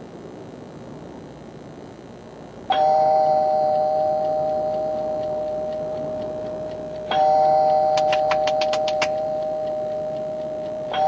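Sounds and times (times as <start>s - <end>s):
bell-like ring: 2.7s - 6.2s, 7.0s - 11.0s.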